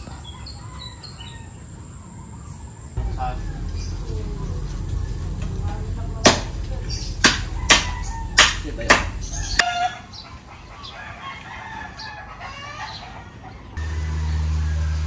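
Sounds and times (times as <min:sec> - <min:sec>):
rooster crowing: 0:00.0 - 0:01.8, 0:07.4 - 0:10.1, 0:10.8 - 0:15.0
sharp knocks: 0:07.2 - 0:09.7.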